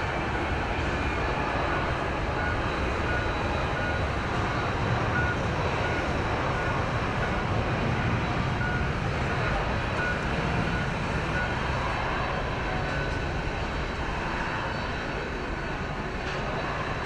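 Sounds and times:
jet engines running: 0.0s - 17.0s
faint short beep: 1.8s - 7.5s, 8.6s - 8.9s, 9.9s - 12.1s.

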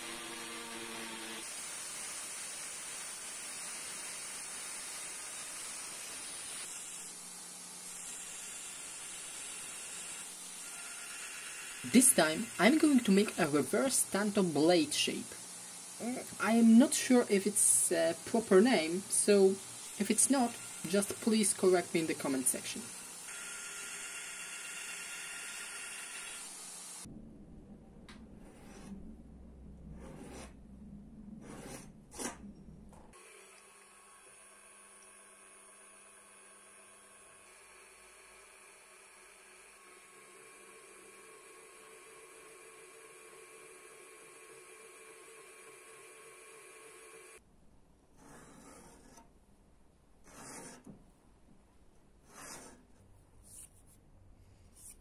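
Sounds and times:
low steady hum: 27.0s - 33.1s
hand tool scraping knife: 30.0s - 30.6s, 31.4s - 32.4s, 48.2s - 49.3s, 50.3s - 50.9s, 52.3s - 53.8s.

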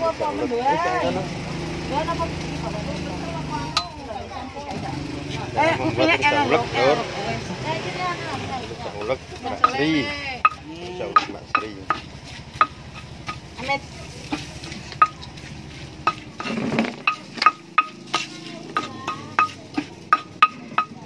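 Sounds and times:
stone pestle knocking in mortar: 9.0s - 13.5s, 14.3s - 15.3s, 16.0s - 21.0s.

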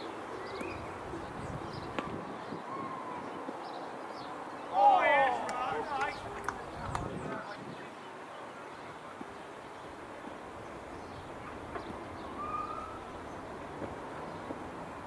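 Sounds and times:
open-air background hiss: 0.0s - 15.0s
bird call: 11.0s - 13.1s.

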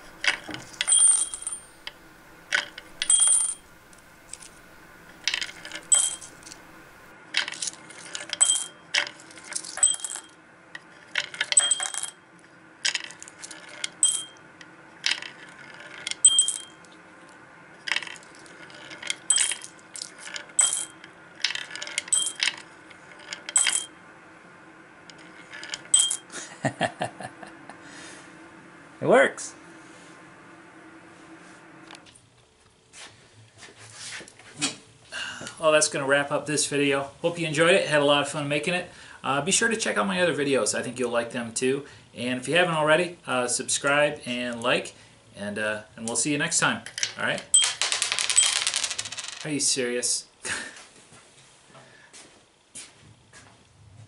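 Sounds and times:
coins running down wooden ramp: 0.0s - 10.3s, 11.2s - 12.2s, 15.1s - 16.7s, 17.9s - 23.9s, 25.2s - 26.2s, 47.5s - 49.5s
coins clinking into glass jars: 0.0s - 10.4s, 11.2s - 12.2s, 12.9s - 14.3s, 15.1s - 16.8s, 17.9s - 22.6s, 23.2s - 23.9s, 25.5s - 26.2s, 47.5s - 49.5s.

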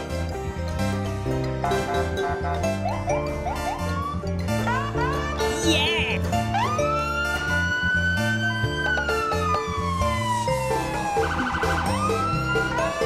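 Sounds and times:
upbeat background music: 0.0s - 13.0s
siren wailing: 5.5s - 13.0s.

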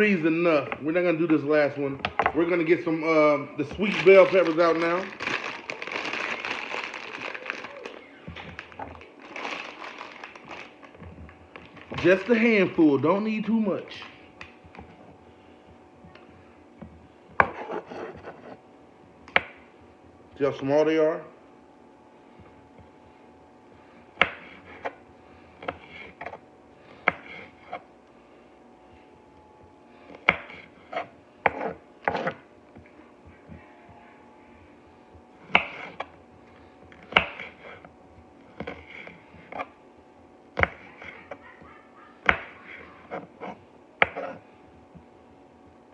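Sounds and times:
plastic bag crinkling: 3.6s - 12.6s.

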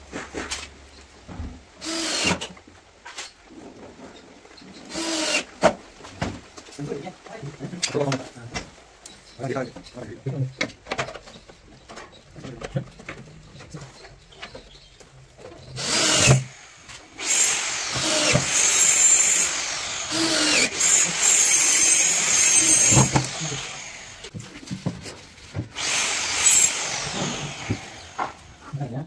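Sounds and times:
electric power tool on wood: 15.8s - 24.3s, 25.8s - 28.6s.

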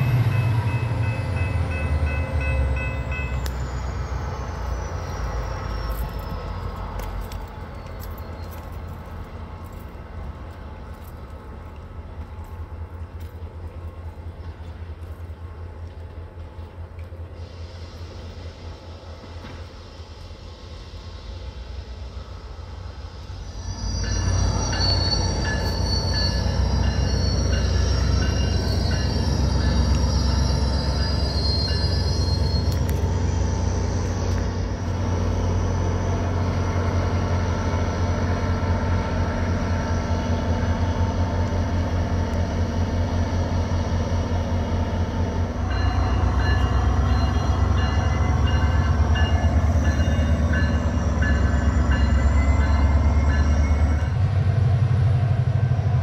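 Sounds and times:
train rumble: 0.0s - 56.0s
high wheel squeal: 2.2s - 8.9s, 23.3s - 36.0s.

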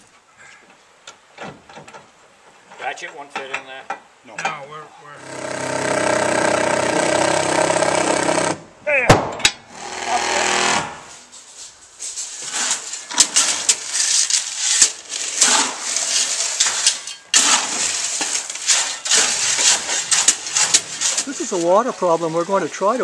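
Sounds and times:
shovels scraping gravel: 10.3s - 23.0s.

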